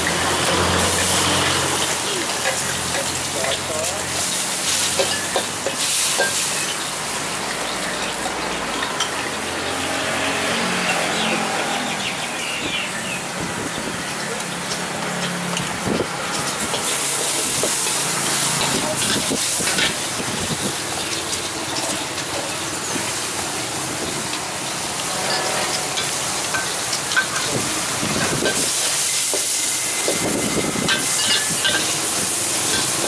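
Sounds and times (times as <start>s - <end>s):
food sizzling in a wok: 0.0s - 33.0s
metal spatula scraping a wok: 25.0s - 27.5s, 30.9s - 33.0s.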